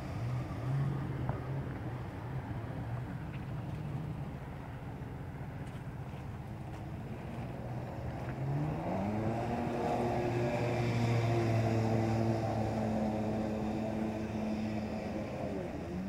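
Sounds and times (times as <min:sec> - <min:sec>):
jet ski engine revving: 0:08.2 - 0:16.0.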